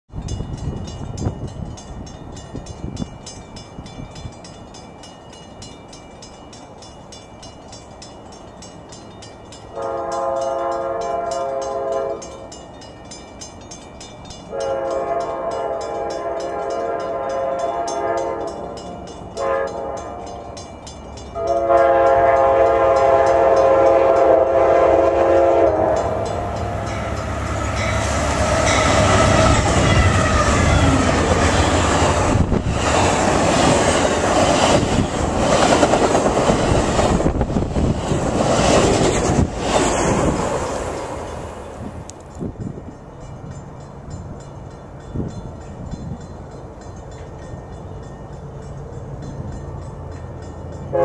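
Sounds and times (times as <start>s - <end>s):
train air horn blasts: 9.7s - 12.4s, 14.5s - 18.8s, 19.4s - 20.6s, 21.4s - 31.8s.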